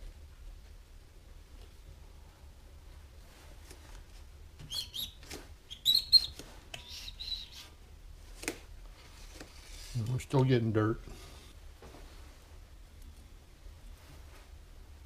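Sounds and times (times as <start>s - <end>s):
rod squeaking against metal: 4.7s - 7.6s.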